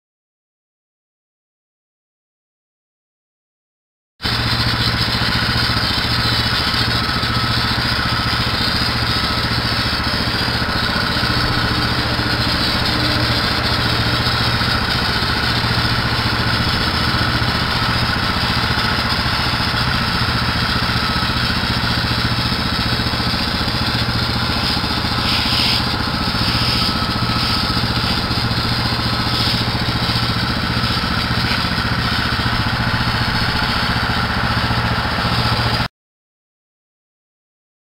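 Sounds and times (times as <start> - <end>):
pressure washer engine running: 4.2 - 35.9
spray hissing on stones: 22.9 - 32.0.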